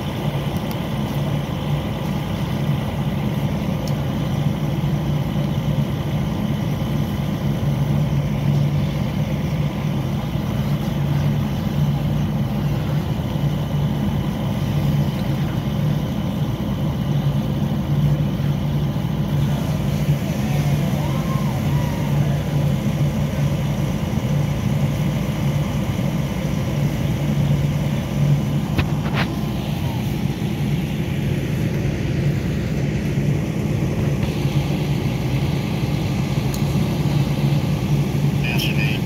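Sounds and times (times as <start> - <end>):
vehicle engine droning: 0.0 - 39.0.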